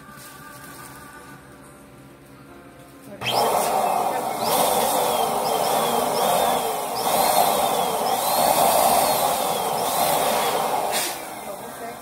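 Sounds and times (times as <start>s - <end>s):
electric balloon pump running: 3.2s - 12.0s.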